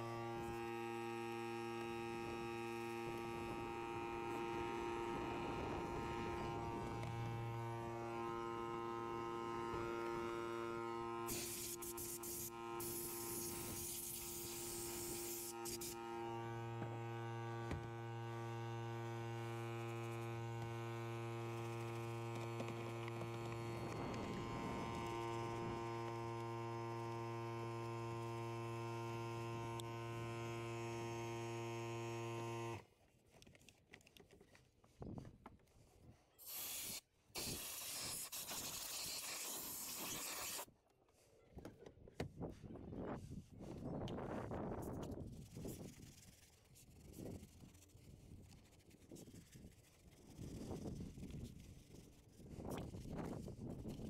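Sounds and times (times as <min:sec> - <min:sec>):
small electric motor humming: 0:00.0 - 0:32.9, 0:36.4 - 0:40.7, 0:43.7 - 0:54.0
short hissing bursts: 0:11.3 - 0:16.0, 0:36.4 - 0:40.7.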